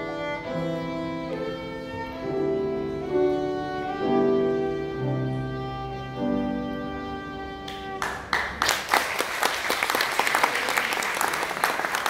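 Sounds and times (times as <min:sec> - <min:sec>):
violin: 0:00.0 - 0:08.4
piano: 0:00.0 - 0:09.8
audience applause: 0:07.7 - 0:12.0.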